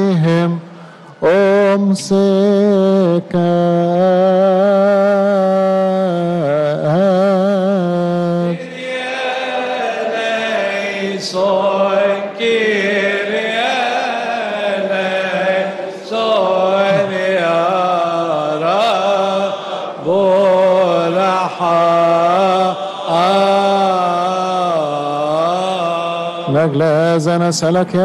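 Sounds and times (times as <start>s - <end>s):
man chanting with vibrato: 0.0s - 28.0s
group chanting response: 8.5s - 26.6s.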